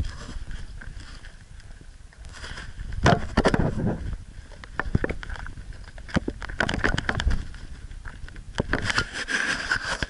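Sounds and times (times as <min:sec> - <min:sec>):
rough background noise: 0:00.0 - 0:10.0
action camera being jostled: 0:04.8 - 0:10.0.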